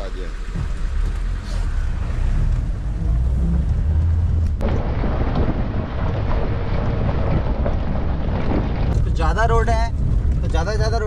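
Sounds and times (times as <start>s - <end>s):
road noise: 0.0s - 11.0s
vehicle engine rumble: 0.0s - 11.0s.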